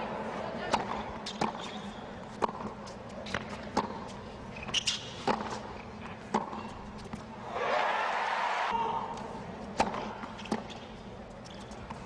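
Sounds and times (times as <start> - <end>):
racket hitting tennis ball: 0.6 - 4.2, 4.8 - 7.2, 9.8 - 10.7
tennis ball bouncing: 0.6 - 7.2, 9.8 - 12.0.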